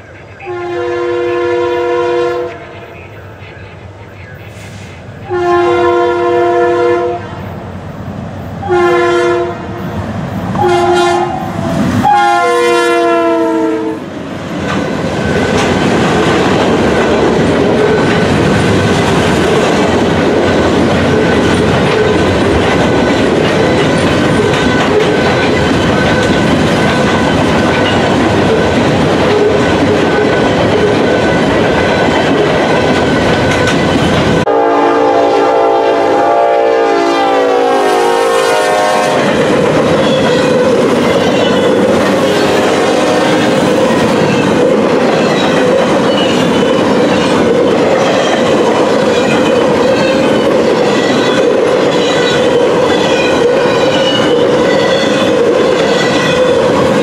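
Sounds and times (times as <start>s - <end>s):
locomotive horn blasts: 0.5s - 2.8s, 5.3s - 7.4s, 8.6s - 9.7s, 10.6s - 14.0s, 34.5s - 39.3s
train wheels clacking on rails: 14.3s - 34.5s, 38.9s - 57.0s.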